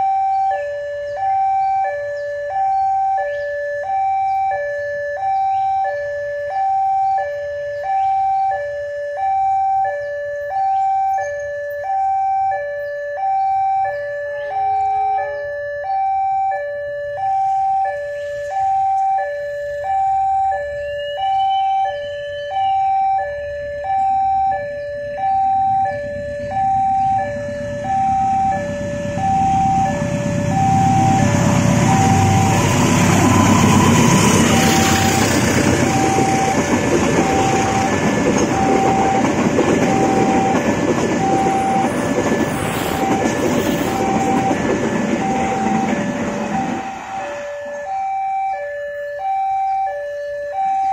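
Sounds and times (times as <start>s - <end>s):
diesel locomotive engine: 0.0s - 50.9s
two-tone crossing alarm: 0.0s - 50.9s
train wheels rumbling: 25.6s - 48.0s.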